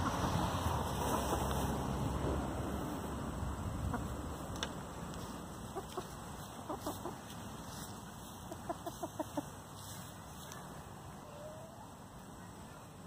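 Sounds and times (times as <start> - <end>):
hens clucking: 0.0 - 1.9, 3.8 - 10.5.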